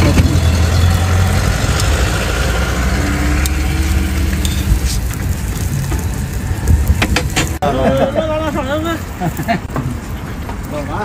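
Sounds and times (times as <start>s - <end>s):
flatbreads sizzling on a griddle: 1.0s - 9.5s.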